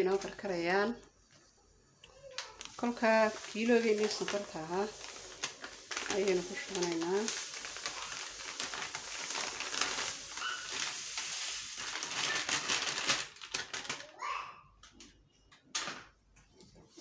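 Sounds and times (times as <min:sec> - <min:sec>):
plastic packet crinkling: 0:00.0 - 0:00.5, 0:02.4 - 0:14.2.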